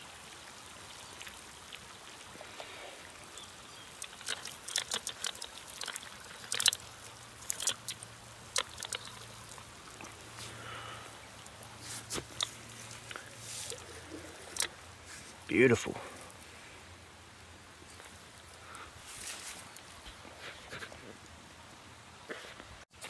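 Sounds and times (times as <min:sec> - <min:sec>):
faint steady hiss: 0:00.0 - 0:23.0
water sloshing in pot: 0:00.9 - 0:15.4.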